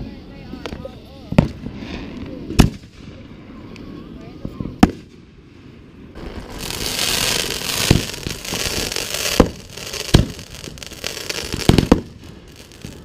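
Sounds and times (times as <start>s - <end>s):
fireworks crackling hiss: 0.0s - 13.0s
fireworks bangs: 0.6s - 3.2s, 4.4s - 5.3s, 6.2s - 13.0s.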